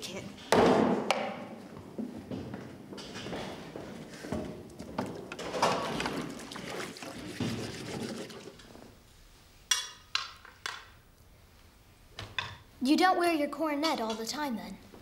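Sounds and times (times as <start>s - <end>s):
liquid pouring: 5.0s - 8.9s
tableware clinking: 9.7s - 10.9s.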